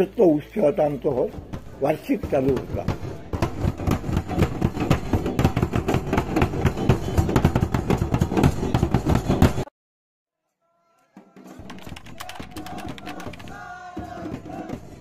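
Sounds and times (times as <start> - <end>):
barrel drums beaten fast: 1.4 - 9.6, 11.6 - 14.8.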